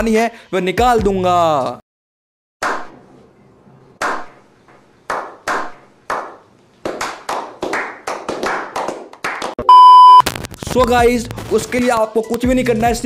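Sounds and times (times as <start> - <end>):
hand claps: 5.1 - 9.6.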